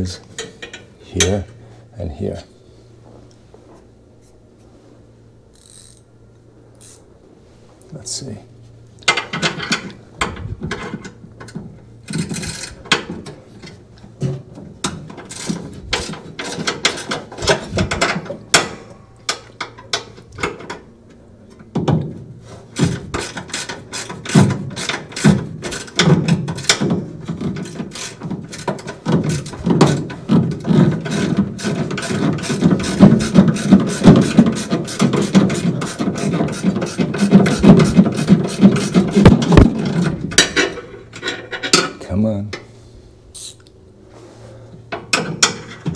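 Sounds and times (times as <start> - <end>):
ratchet wrench clicking: 5.5 - 6.1, 6.8 - 7.0.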